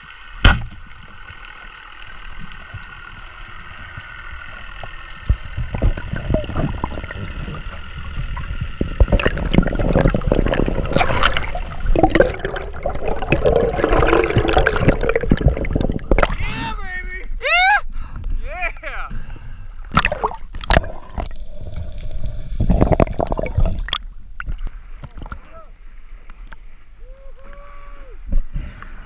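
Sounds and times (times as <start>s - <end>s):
water rushing and bubbling: 0.0s - 16.6s, 19.9s - 25.5s
underwater hiss: 20.9s - 23.9s.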